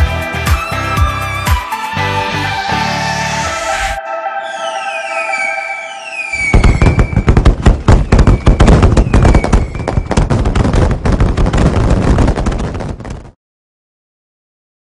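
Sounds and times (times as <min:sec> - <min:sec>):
fireworks falling whistles: 0:03.0 - 0:12.6
fireworks bangs and crackling: 0:06.3 - 0:13.4.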